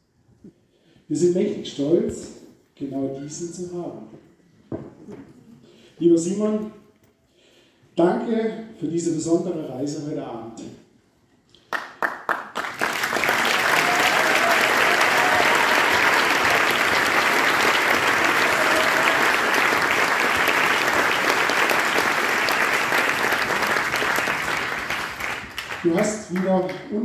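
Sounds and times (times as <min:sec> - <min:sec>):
audience applauding: 0:11.7 - 0:26.9.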